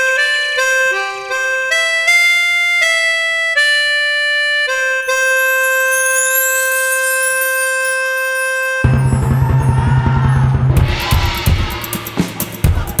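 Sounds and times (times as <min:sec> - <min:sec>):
reedy melody of held notes: 0:00.0 - 0:09.8.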